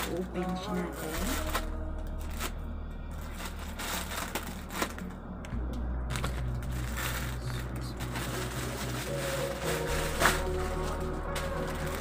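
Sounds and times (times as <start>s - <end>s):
scissors cutting plastic: 0.0s - 2.6s, 7.1s - 12.0s
plastic pouch crinkling: 0.0s - 5.2s, 6.1s - 12.0s.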